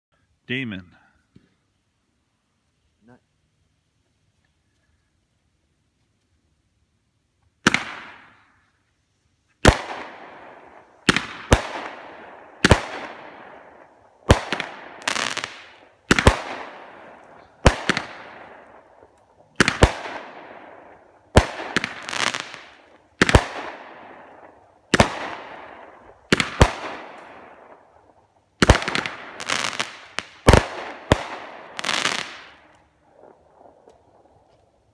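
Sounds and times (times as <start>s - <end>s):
firework bangs: 7.6s - 8.6s, 9.6s - 34.5s.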